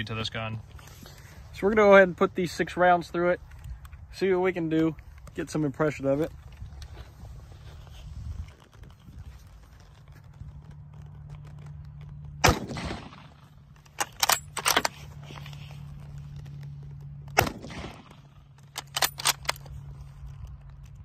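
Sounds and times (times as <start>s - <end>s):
rifle shots with echo: 12.4s - 13.6s, 17.3s - 19.5s
rifle bolt metallic clicks: 13.7s - 15.1s, 17.3s - 21.0s.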